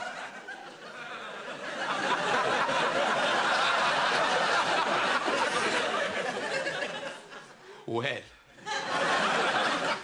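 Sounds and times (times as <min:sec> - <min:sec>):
audience laughing: 0:00.0 - 0:07.6, 0:08.6 - 0:10.0.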